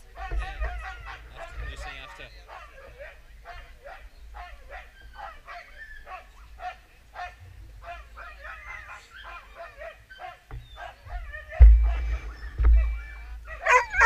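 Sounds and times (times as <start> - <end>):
dog yelping and whining: 8.4 - 14.0
loud low thump: 10.5 - 13.4.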